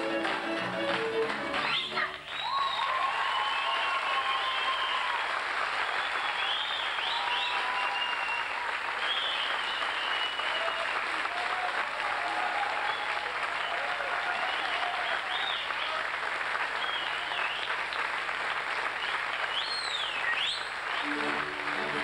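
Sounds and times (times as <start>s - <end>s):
music: 0.0s - 2.4s, 21.0s - 22.0s
audience applauding: 0.0s - 22.0s.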